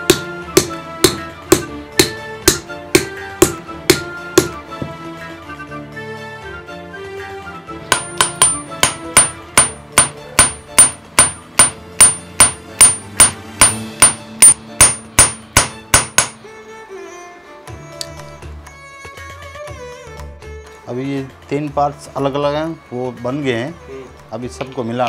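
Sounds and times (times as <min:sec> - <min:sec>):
hammer striking metal on anvil: 0:00.0 - 0:04.6, 0:07.9 - 0:16.4
soft background music: 0:00.0 - 0:25.0.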